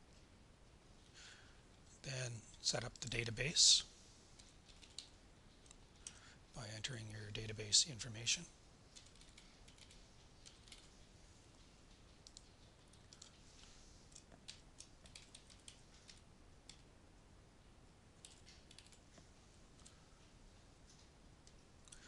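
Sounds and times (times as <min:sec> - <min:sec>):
low room hiss: 0:00.0 - 0:22.0
keyboard typing: 0:04.4 - 0:06.2, 0:08.9 - 0:10.9, 0:11.9 - 0:13.4, 0:14.1 - 0:16.8, 0:18.2 - 0:19.1.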